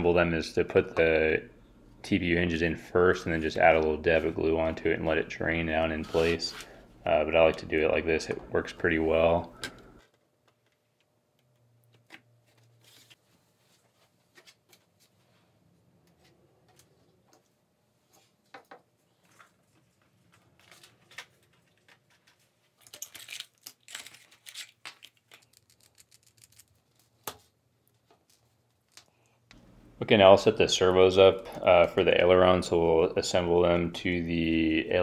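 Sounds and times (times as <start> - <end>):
low steady hum: 0.0 - 13.8, 29.2 - 35.0
plastic crinkling: 19.2 - 27.2.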